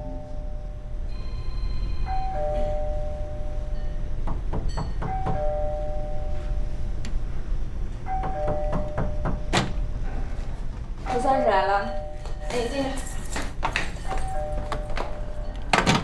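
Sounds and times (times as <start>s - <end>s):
two-note doorbell chime: 0.0s - 6.7s, 8.1s - 9.5s, 11.4s - 12.6s, 14.1s - 15.8s
knocking on door: 4.2s - 5.5s, 8.2s - 9.8s.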